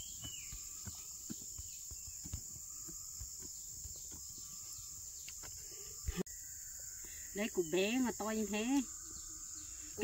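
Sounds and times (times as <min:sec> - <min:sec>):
high-pitched insect chorus: 0:00.0 - 0:10.0
soft knocks and thuds: 0:00.1 - 0:04.6.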